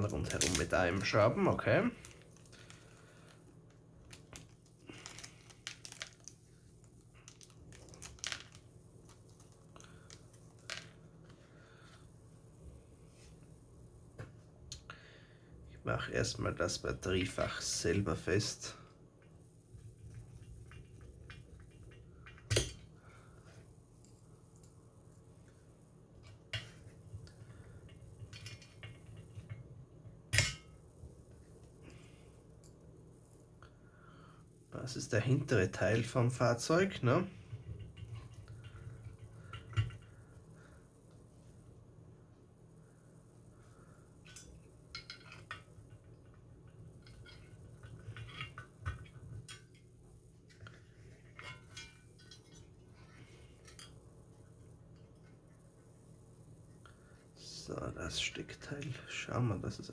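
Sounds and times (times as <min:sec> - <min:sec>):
plastic bag crinkling: 0:04.0 - 0:10.7.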